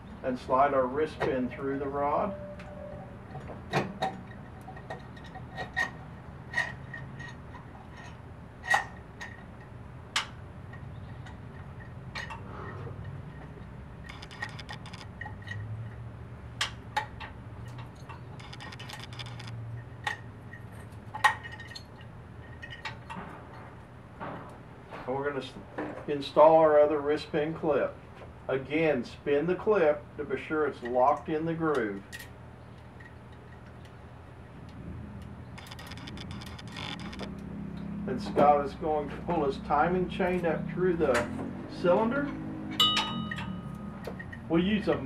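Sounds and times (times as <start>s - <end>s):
metal parts rattling: 3.0s - 9.7s, 13.0s - 16.0s, 17.0s - 23.6s, 35.5s - 37.4s
light metallic clicks and clinks: 42.1s - 45.0s.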